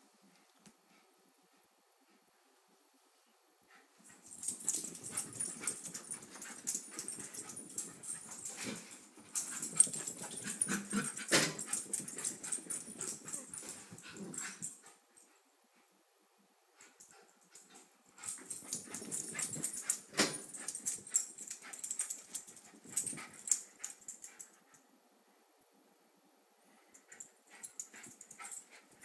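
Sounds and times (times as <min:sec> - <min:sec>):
small dogs play-fighting: 0:03.9 - 0:15.0, 0:16.9 - 0:24.6, 0:26.9 - 0:29.0.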